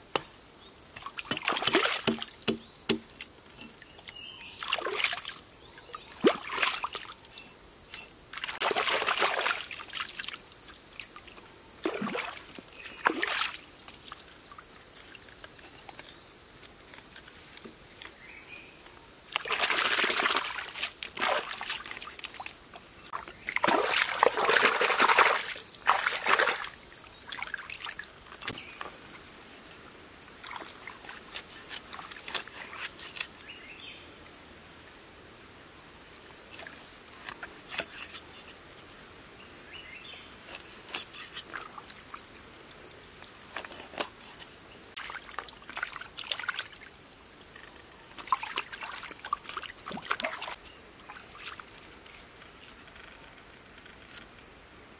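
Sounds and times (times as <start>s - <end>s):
steady high hiss: 0.0s - 54.9s
water splashing and sloshing: 1.0s - 4.0s, 4.6s - 16.0s, 19.3s - 29.0s, 30.2s - 33.3s, 40.5s - 52.3s.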